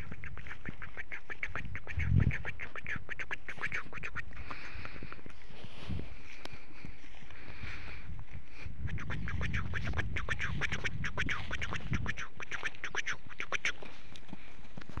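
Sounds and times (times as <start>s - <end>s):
short animal calls: 0.0s - 4.9s, 8.8s - 13.9s.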